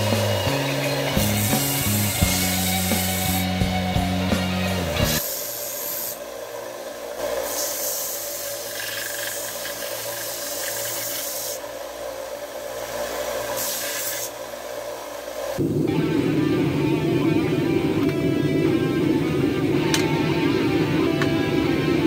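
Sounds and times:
sander motor hum: 0.0s - 5.6s
belt sander grinding metal: 0.0s - 6.2s, 7.3s - 11.7s.

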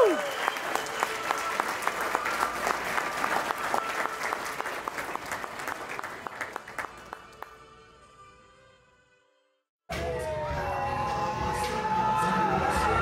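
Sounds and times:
people applauding: 0.0s - 7.6s.

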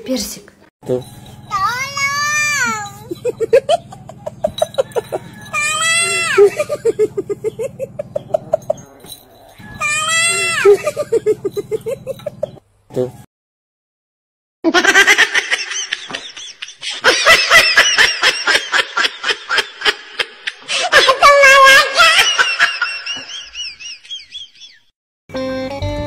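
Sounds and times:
person laughing hard: 3.0s - 9.0s, 10.3s - 12.6s, 14.7s - 24.8s.

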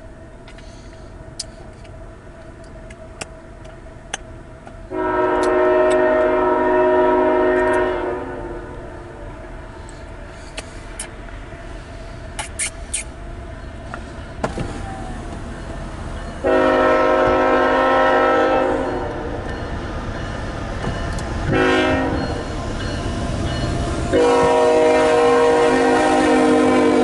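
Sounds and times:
train rumble: 0.0s - 27.0s
locomotive air horn: 4.9s - 9.2s, 16.4s - 19.4s, 21.5s - 22.4s, 24.1s - 27.0s.

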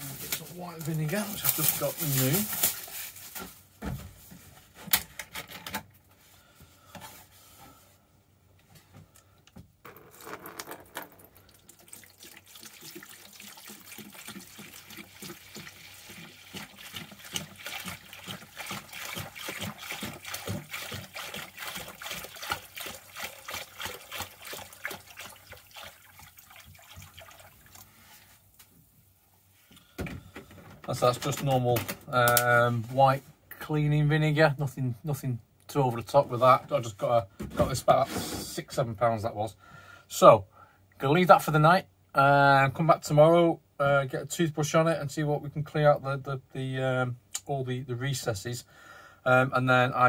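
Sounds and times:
liquid pouring into plastic tub: 10.0s - 28.3s.

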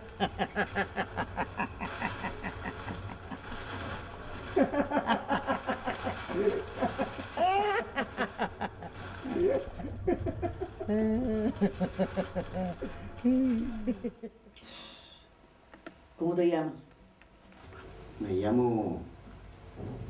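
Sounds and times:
man laughing out loud: 0.0s - 3.8s, 4.5s - 14.4s.

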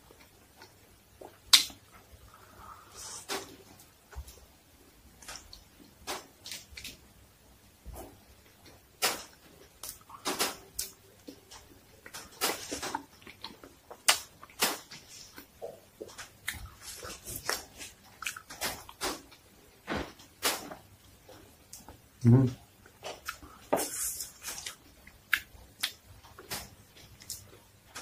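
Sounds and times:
person chewing crunchy food: 9.6s - 19.4s, 22.8s - 27.7s.

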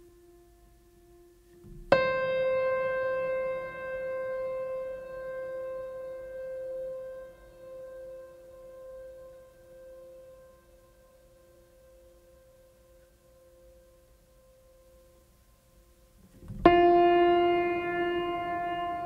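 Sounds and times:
piano note ringing: 0.0s - 12.6s, 16.4s - 19.0s
faint sustained tones: 0.0s - 19.0s.

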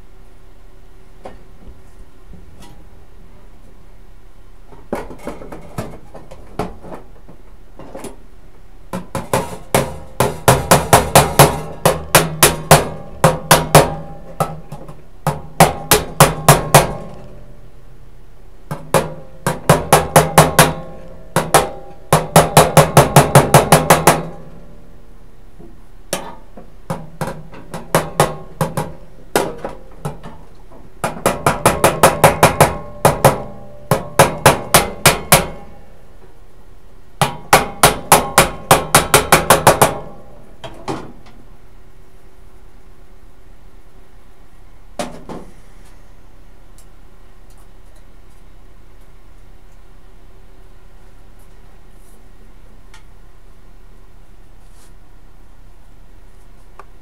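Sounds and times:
hammer striking sheet metal: 9.0s - 17.4s, 18.7s - 24.6s, 26.1s - 30.4s, 31.0s - 35.9s, 37.2s - 41.2s.

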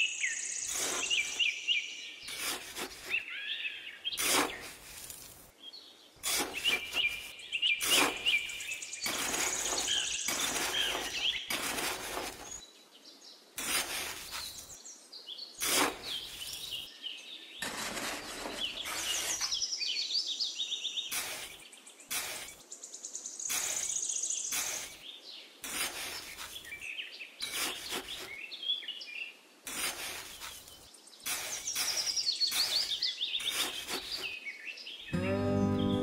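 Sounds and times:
small birds chirping: 0.0s - 36.0s
tool scraping damp sand: 0.6s - 1.5s, 2.2s - 3.3s, 4.1s - 5.5s, 6.2s - 12.6s, 13.6s - 14.8s, 15.6s - 16.9s, 17.6s - 19.6s, 21.1s - 22.6s, 23.5s - 26.8s, 27.4s - 28.4s, 29.6s - 34.4s.

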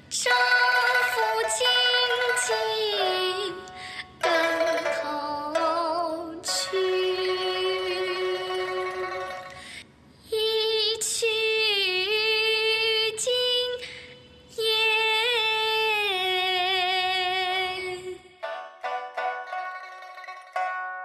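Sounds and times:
girl singing a slow ballad: 0.1s - 18.3s.

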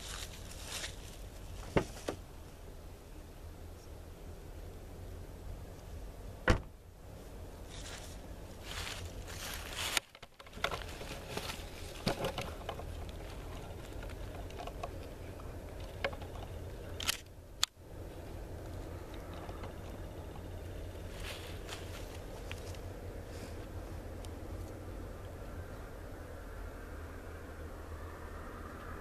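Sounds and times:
steady low rumble: 0.0s - 29.0s
camera handling noise: 17.0s - 17.3s.

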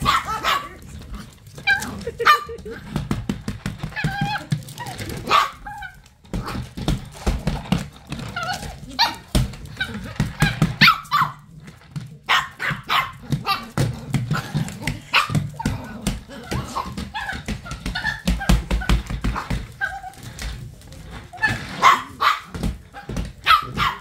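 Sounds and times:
small dog barking: 0.0s - 0.8s, 5.2s - 5.6s, 23.4s - 24.0s.

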